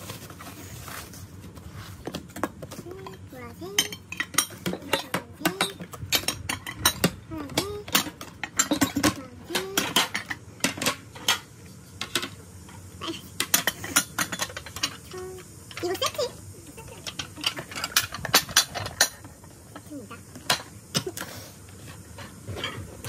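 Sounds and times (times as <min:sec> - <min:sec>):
ceramic plates clinking: 0:03.0 - 0:11.4.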